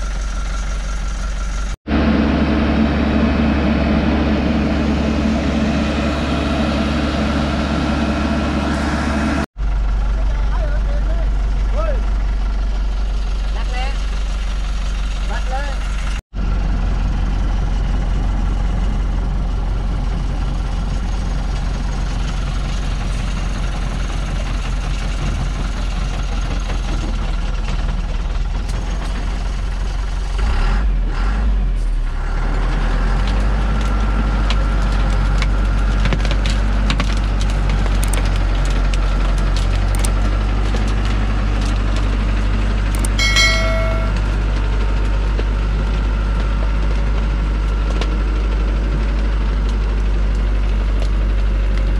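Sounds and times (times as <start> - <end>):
truck diesel engine under load: 0.0 - 51.9
cracks and clicks: 33.3 - 42.1
short high tone: 43.2 - 44.4.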